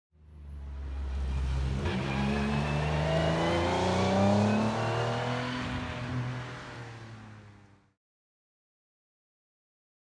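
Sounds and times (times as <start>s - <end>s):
rally car engine accelerating: 0.6s - 7.8s.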